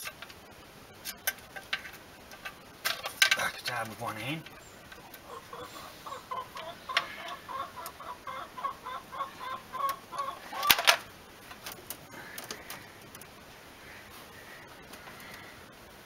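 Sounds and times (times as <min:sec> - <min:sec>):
hen clucking: 0:04.4 - 0:11.0.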